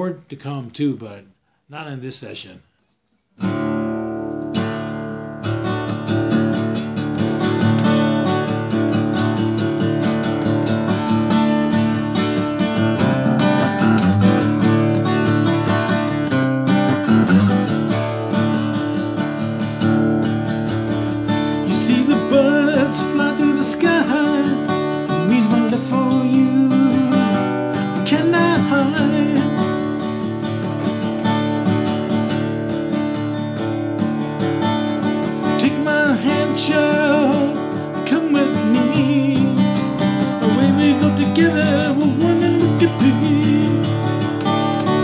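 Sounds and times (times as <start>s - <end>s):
acoustic guitar strumming: 3.4s - 45.0s
man singing: 21.6s - 30.0s, 35.4s - 44.3s.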